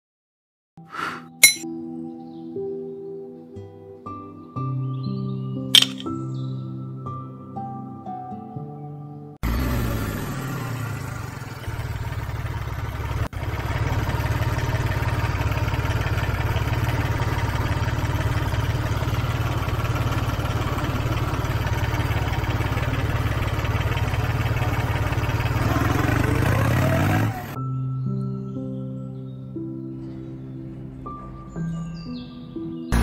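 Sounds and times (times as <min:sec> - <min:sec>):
engine idling and revving: 0:09.4 - 0:27.6.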